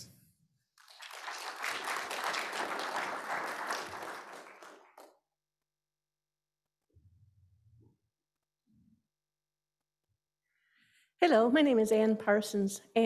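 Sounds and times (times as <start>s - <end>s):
audience applauding: 0.8s - 5.2s.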